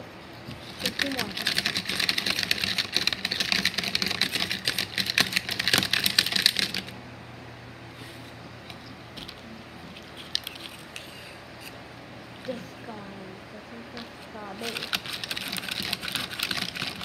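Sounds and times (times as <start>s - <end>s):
plastic toy figures clacking: 0.8s - 6.9s.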